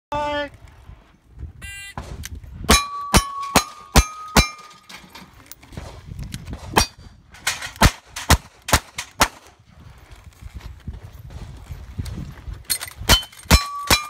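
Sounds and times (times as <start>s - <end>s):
steel plate ringing clang: 2.7s - 5.2s, 13.1s - 14.0s.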